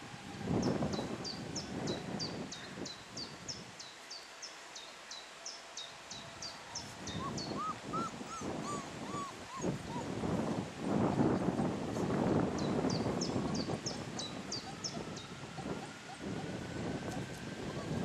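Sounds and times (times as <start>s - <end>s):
bird chirping: 4.8s - 10.0s
puppies whimpering: 6.7s - 10.3s, 14.2s - 16.6s.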